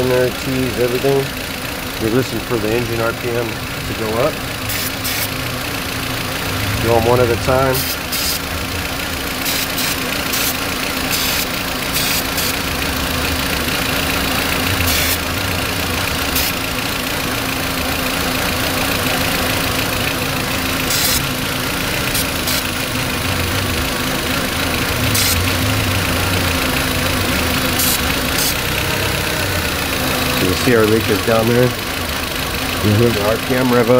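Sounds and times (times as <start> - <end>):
car engine idling roughly: 0.0 - 33.9.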